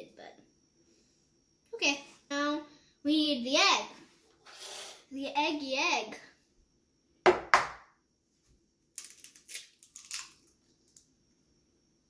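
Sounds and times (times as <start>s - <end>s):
egg cracking on hard edge: 9.0s - 10.5s
eggshell crackling: 9.0s - 11.0s.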